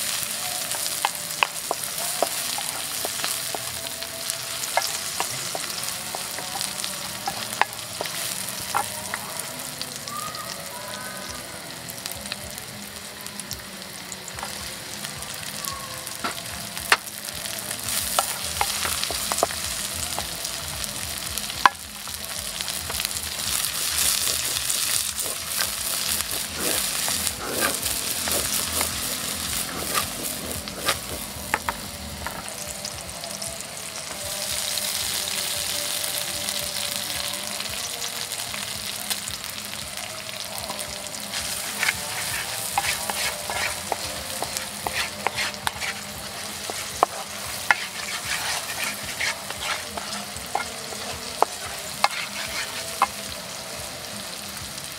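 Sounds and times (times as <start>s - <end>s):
chillies sizzling in hot oil: 0.0s - 54.9s
wooden spatula scraping wok: 23.4s - 32.5s, 41.3s - 53.2s.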